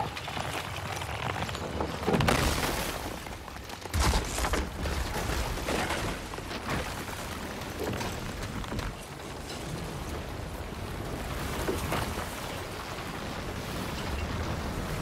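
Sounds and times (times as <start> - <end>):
ice cracking and grinding: 0.0 - 9.6.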